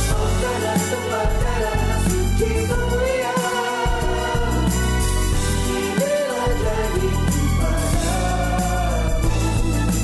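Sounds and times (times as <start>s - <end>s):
instrumental backing with bass line: 0.0s - 10.0s
mixed choir singing: 0.0s - 10.0s.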